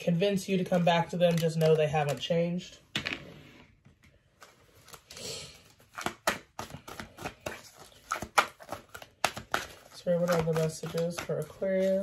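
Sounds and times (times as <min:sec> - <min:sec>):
cards slapping together: 0:01.2 - 0:02.3, 0:05.8 - 0:12.0
cards sliding rustle: 0:03.6 - 0:12.0.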